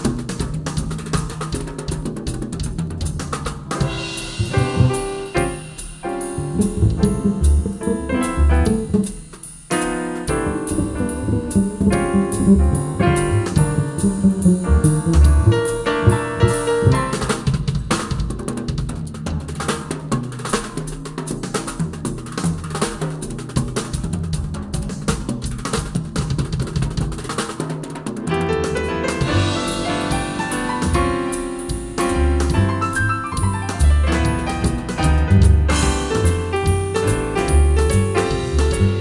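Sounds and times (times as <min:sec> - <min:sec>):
piano: 0:00.0 - 0:18.4, 0:27.1 - 0:39.0
drum kit playing: 0:00.0 - 0:39.0
jazz band playing: 0:03.1 - 0:18.2, 0:28.2 - 0:39.0.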